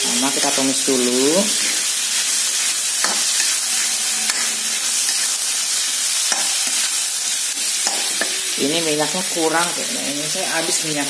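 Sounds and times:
metal spatula scraping a pan: 0:00.0 - 0:08.5
food sizzling in a wok: 0:00.0 - 0:11.0.

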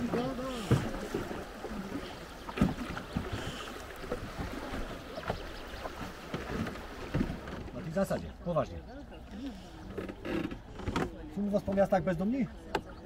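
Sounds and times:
river water rushing: 0:00.0 - 0:07.8.

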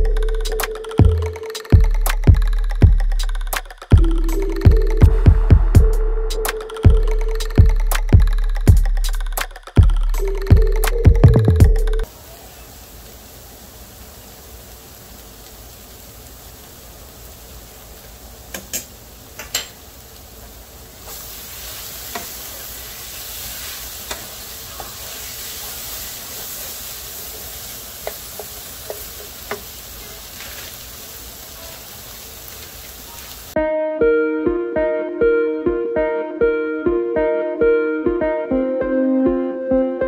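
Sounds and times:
food sizzling in frying pan: 0:12.0 - 0:33.6
wooden spatula scraping: 0:21.1 - 0:30.8.

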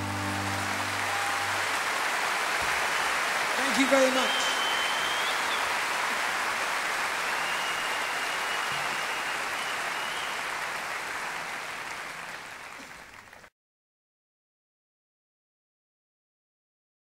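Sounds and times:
audience applauding: 0:00.0 - 0:13.5.

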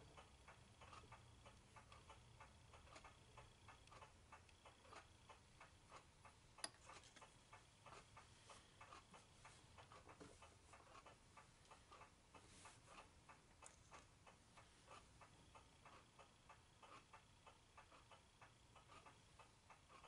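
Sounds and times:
faint even ticking: 0:00.0 - 0:20.0.

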